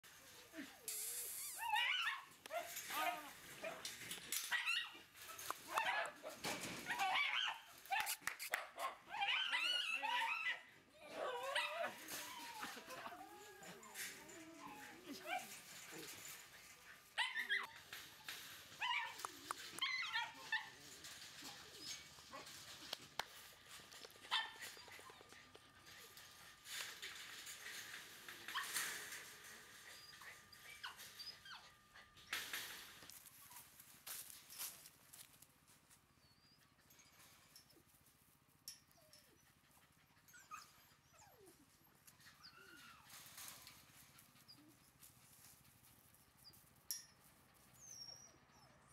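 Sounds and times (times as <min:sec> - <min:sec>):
puppies yipping and whining: 0:01.0 - 0:03.3, 0:09.1 - 0:22.7, 0:28.5 - 0:32.6, 0:38.9 - 0:46.7, 0:47.5 - 0:48.9
dog whimpering: 0:42.3 - 0:43.2.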